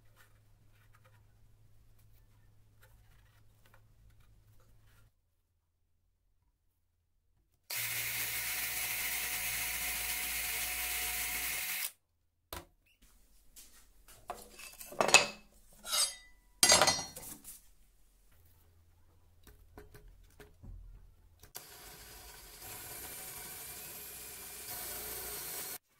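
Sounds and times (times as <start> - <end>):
cordless drill drilling wood: 7.7 - 12.0, 21.6 - 25.8
tools and wood clinking: 14.3 - 17.4.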